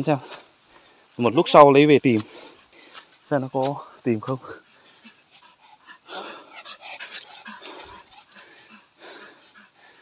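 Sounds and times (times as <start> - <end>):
dog panting: 4.6 - 10.0.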